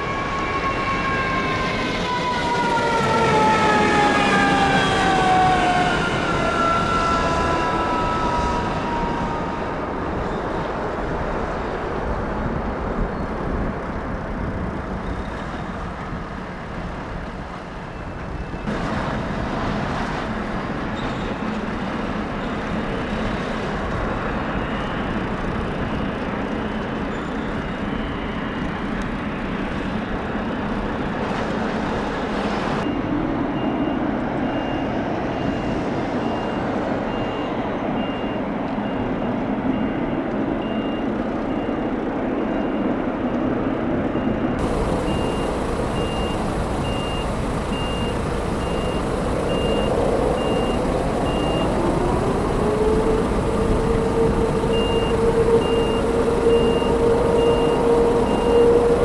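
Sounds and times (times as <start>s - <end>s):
reversing alarm beeping: 32.8s - 43.5s, 44.1s - 59.0s
engine rumble: 43.8s - 59.0s
low hum rising in pitch: 44.6s - 59.0s.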